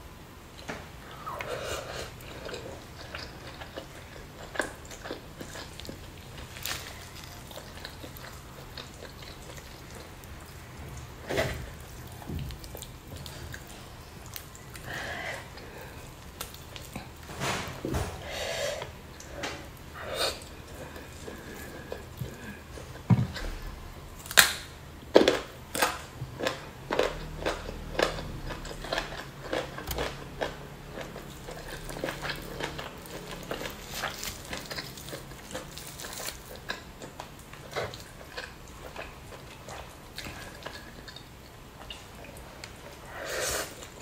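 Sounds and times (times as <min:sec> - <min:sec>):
chewing with wet mouth smacks: 0:01.1 - 0:17.2, 0:25.2 - 0:44.0.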